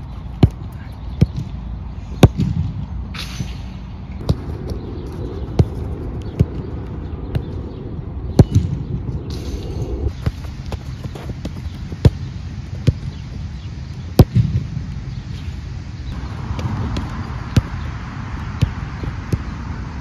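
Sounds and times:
football kicked hard: 16.5s - 17.8s, 18.5s - 19.5s.

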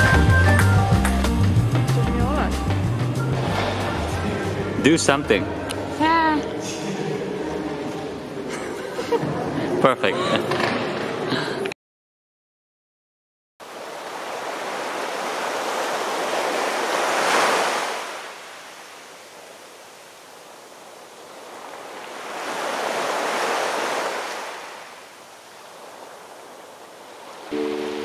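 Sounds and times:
waves washing on beach: 13.6s - 28.0s.

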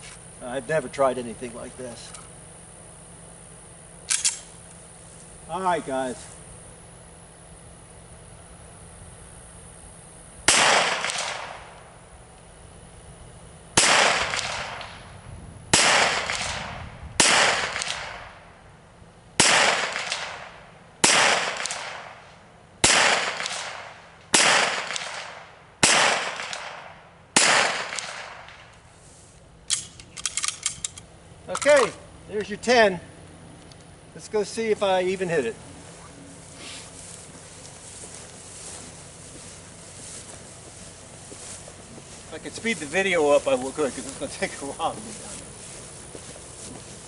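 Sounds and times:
handgun shots with echo: 4.1s - 4.5s, 10.5s - 11.6s, 13.8s - 15.0s, 15.8s - 18.3s, 19.4s - 22.2s, 22.8s - 28.6s.

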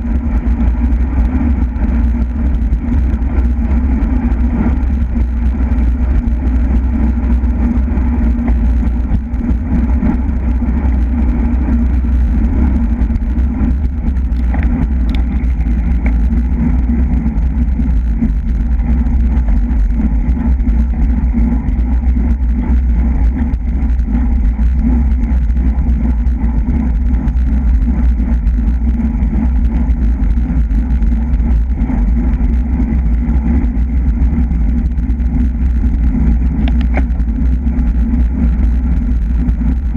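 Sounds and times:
wind buffeting microphone: 0.0s - 39.9s.

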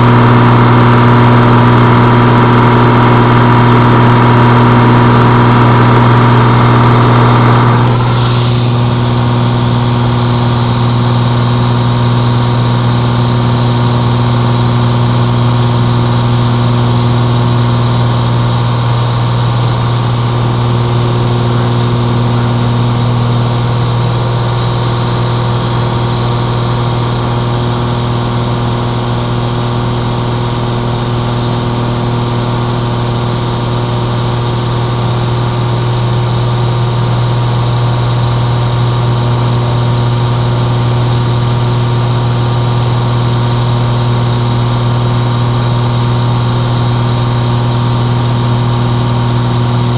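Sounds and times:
aircraft engine droning: 0.0s - 10.2s.

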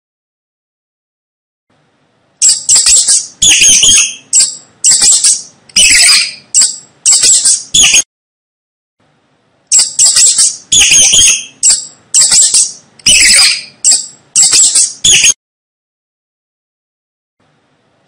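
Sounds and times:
mice squeaking: 2.4s - 8.0s, 9.7s - 15.4s.

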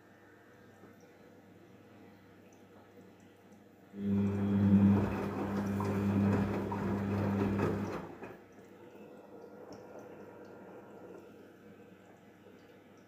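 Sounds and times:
washing machine motor hum: 4.0s - 12.7s
water and laundry sloshing: 4.0s - 13.0s.

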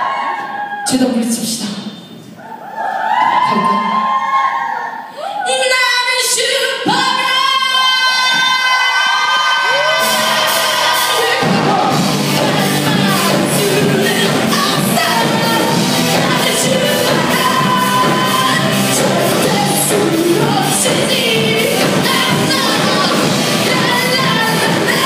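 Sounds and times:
drums: 3.0s - 25.0s
bass: 5.6s - 25.0s
person singing: 6.3s - 25.0s.

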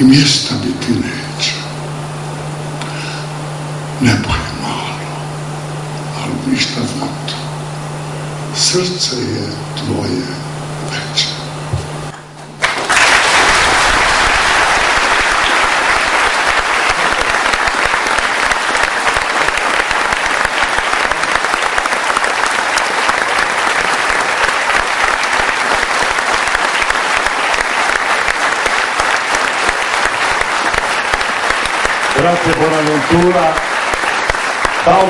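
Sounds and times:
large audience applauding: 12.6s - 35.0s.

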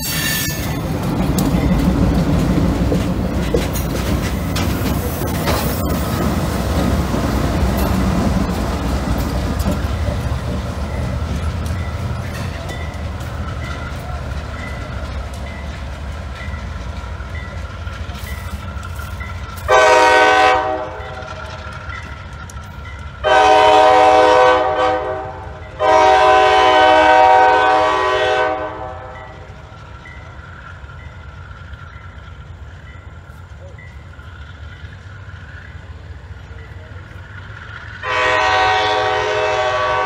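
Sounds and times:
diesel locomotives rumbling past: 0.0s - 40.0s
locomotive air horn blasts: 19.7s - 21.2s, 23.2s - 29.4s, 38.0s - 40.0s.

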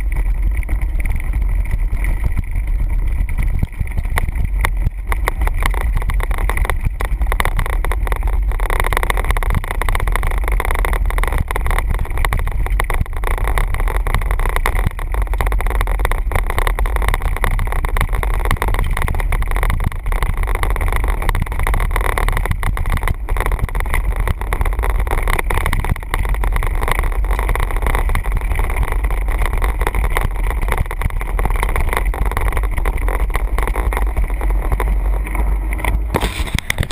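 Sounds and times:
bike rattling: 0.0s - 26.5s, 27.1s - 36.9s
bike tyres on gravel: 0.0s - 36.9s
wind rumble on microphone: 0.0s - 36.9s.

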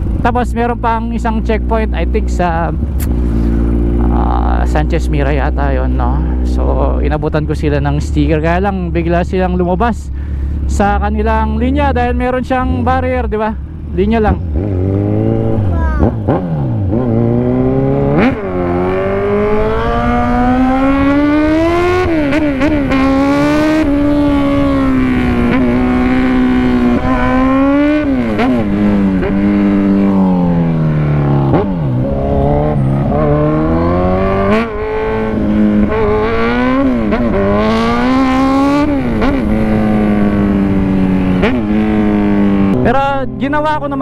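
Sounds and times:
motorcycle engine revving: 0.0s - 44.0s
road and wind noise: 0.0s - 44.0s.

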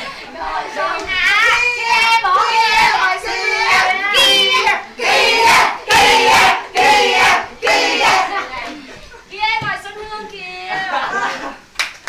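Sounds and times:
group chanting: 0.0s - 8.5s
group singing along: 0.0s - 8.6s
young people shouting and cheering: 0.0s - 9.1s.

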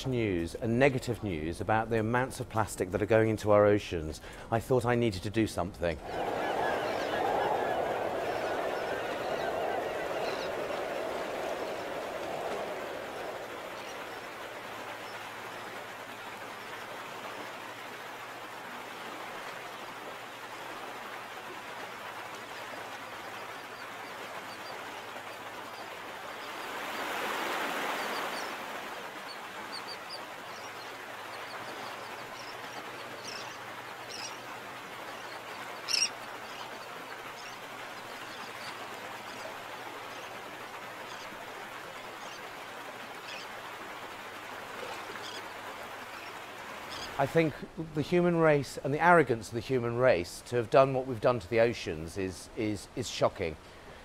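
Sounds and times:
rushing noise: 6.0s - 14.8s
water bird calls: 6.0s - 18.2s, 21.3s - 48.0s
water washing: 6.0s - 48.2s.

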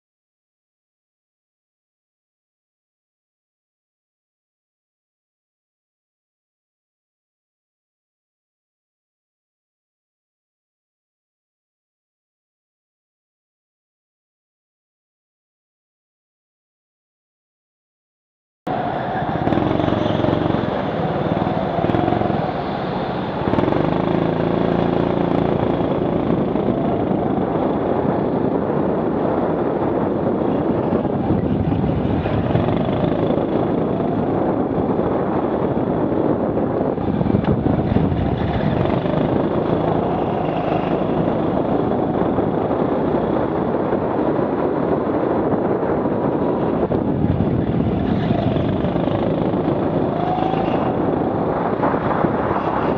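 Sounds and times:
go-kart engine driving at speed: 18.7s - 52.9s.

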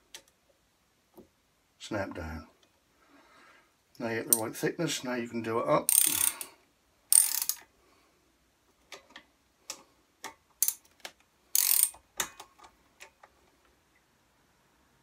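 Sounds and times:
ratchet wrench clicking: 5.9s - 6.5s, 7.1s - 7.6s, 10.6s - 10.8s, 11.6s - 12.0s.

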